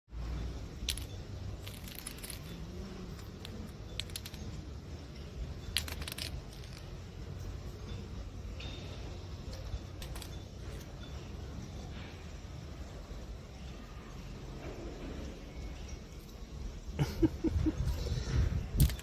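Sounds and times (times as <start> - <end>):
spool clicking on stone paving: 0.5 - 7.1, 9.5 - 10.9, 18.8 - 19.0.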